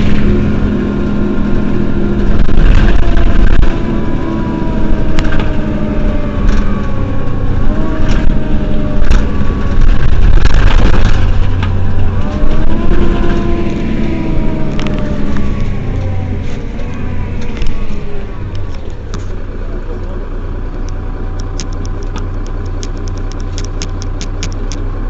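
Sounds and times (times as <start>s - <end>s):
bus diesel engine idling: 0.0s - 25.0s
whining tones: 0.0s - 25.0s
sharp clicks: 20.8s - 24.8s.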